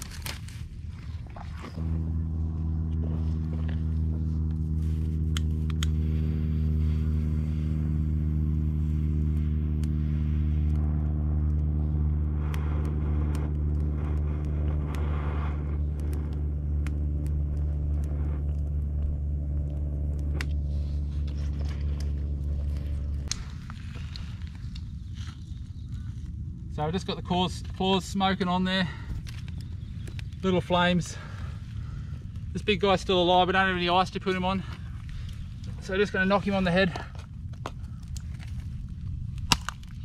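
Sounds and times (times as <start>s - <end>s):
motor running: 1.6s - 24.3s.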